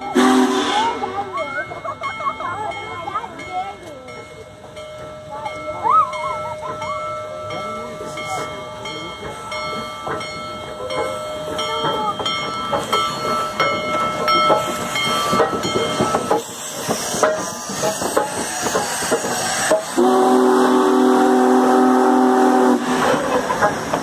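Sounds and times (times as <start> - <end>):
steam locomotive running gear clanking: 0.0 - 24.0.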